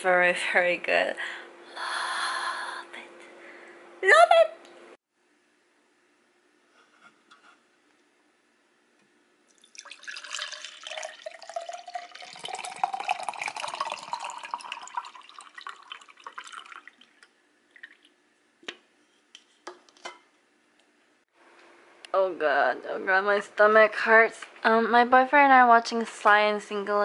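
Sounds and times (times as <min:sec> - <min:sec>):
drink pouring into a glass: 0:09.5 - 0:18.2.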